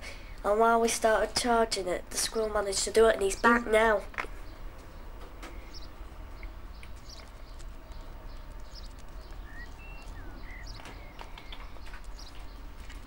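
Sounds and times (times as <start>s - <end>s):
steady low rumble: 4.1s - 13.0s
bird chirps: 4.4s - 12.7s
faint clicks: 6.4s - 13.0s.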